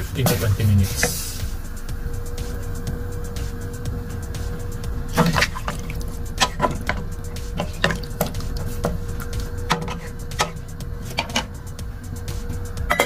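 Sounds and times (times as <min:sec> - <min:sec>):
steady low hum: 0:00.0 - 0:13.0
liquid sloshing in a pot: 0:05.1 - 0:11.5
spoon knocking against metal pot: 0:06.4 - 0:09.0.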